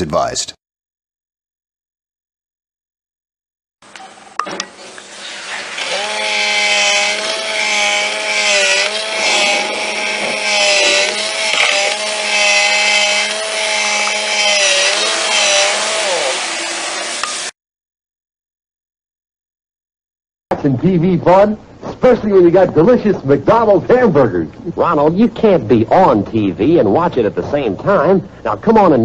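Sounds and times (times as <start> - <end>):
small electric motor whirring: 5.5 - 17.5.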